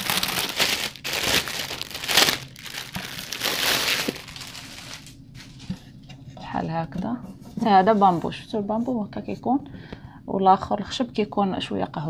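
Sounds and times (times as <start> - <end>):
packaging crinkling and tearing: 0.0 - 5.2.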